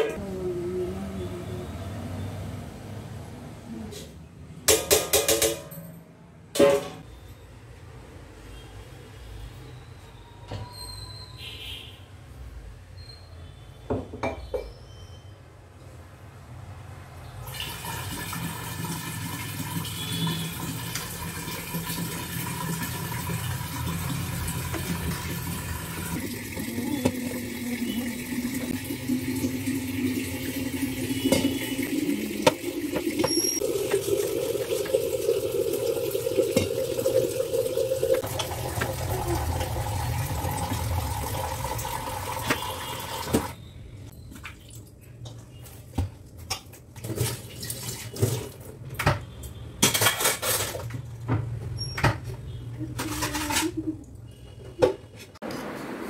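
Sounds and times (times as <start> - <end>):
water running: 17.5 - 43.6.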